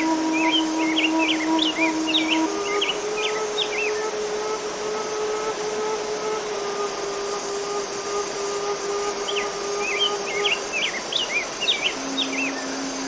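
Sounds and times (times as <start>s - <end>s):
bird chirping: 0.0s - 4.2s, 8.1s - 13.0s
flute long low notes: 0.0s - 13.0s
stream rushing over rocks: 0.0s - 13.0s.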